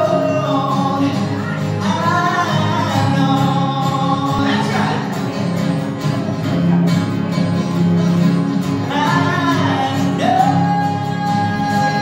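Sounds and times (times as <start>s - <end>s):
man singing: 0.0s - 5.7s, 8.6s - 12.0s
acoustic guitar: 0.0s - 12.0s.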